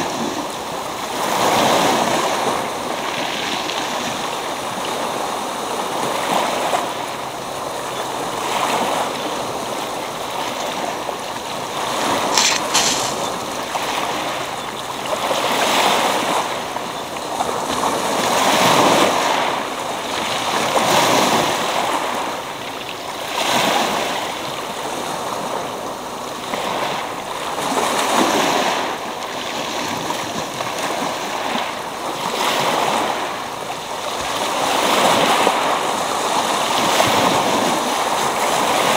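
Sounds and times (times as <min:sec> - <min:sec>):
surf washing over pebble beach: 0:00.0 - 0:22.6, 0:23.2 - 0:29.0.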